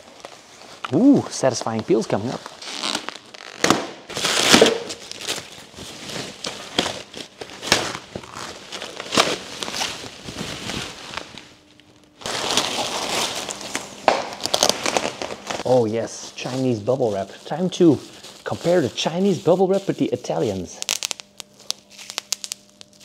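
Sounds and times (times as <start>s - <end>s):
plastic wrap crinkling and ripping: 0.0s - 23.0s.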